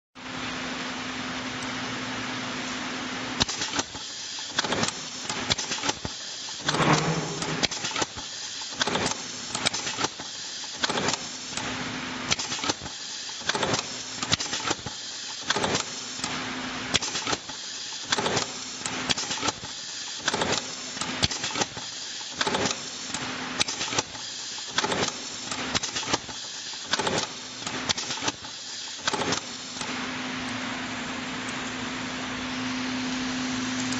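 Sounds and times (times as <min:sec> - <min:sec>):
machine hum: 0:06.6 - 0:08.1.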